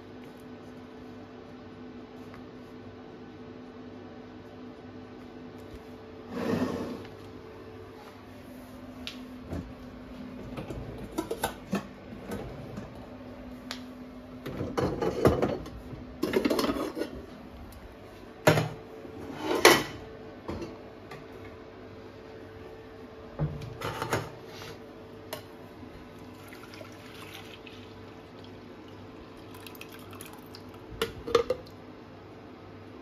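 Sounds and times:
pots and lids clattering: 11.0 - 11.9, 14.5 - 17.2.

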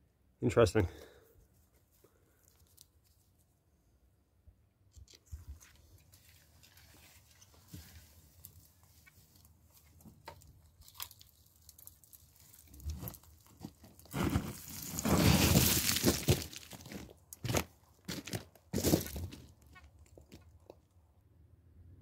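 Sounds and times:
shovel crunching gravel: 10.8 - 19.6
boots on gravel: 13.0 - 20.4.

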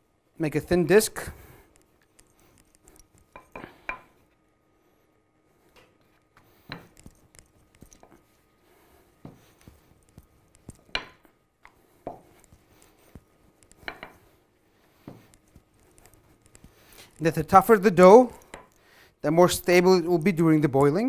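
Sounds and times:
rolling pin rolling dough: 0.7 - 4.4, 5.9 - 18.8.

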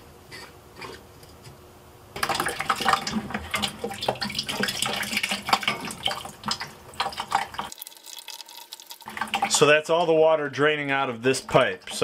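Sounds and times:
water splashing from pipe: 2.2 - 9.8, 11.3 - 12.0.

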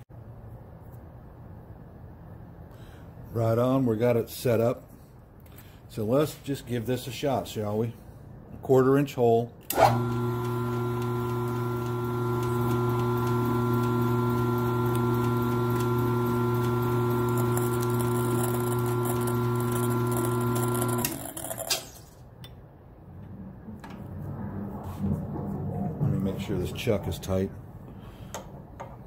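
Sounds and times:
electric motor humming: 9.7 - 21.7.

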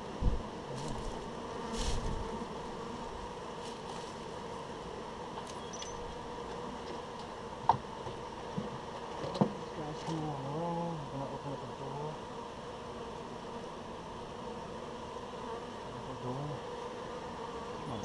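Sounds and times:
honeybees buzzing: 0.0 - 18.0
wooden hive equipment knocks: 7.6 - 10.2.

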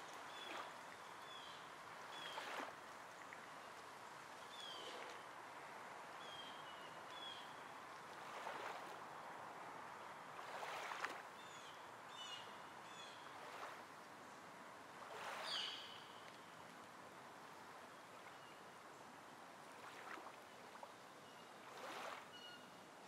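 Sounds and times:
songbirds chirping: 0.0 - 5.4.

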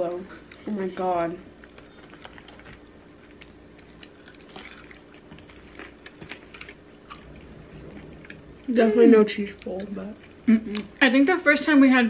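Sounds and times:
chewing crunchy fried food: 1.4 - 8.7, 9.5 - 11.0.

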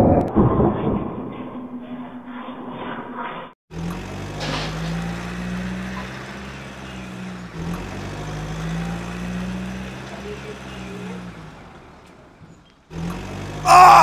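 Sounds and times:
low engine hum: 3.7 - 14.0.

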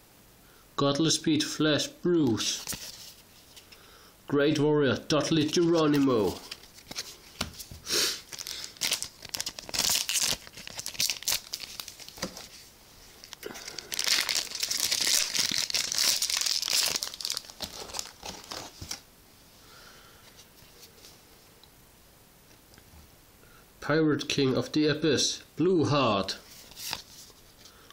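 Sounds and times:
foil wrapper crinkling and tearing: 5.5 - 12.6, 13.2 - 19.0.

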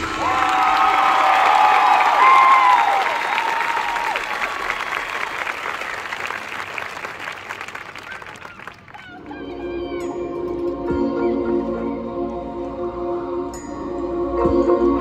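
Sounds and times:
crowd applauding: 0.0 - 9.4
crowd whooping: 0.0 - 9.6.

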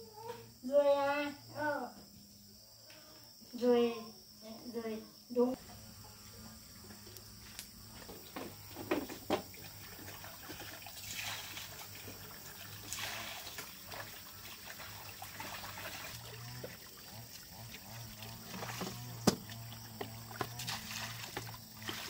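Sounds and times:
water splashing into plastic bucket: 8.1 - 22.0.

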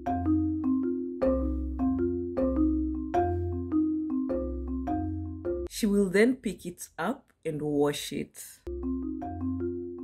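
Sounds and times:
melody of struck notes over bass: 0.0 - 5.7, 8.7 - 10.0.

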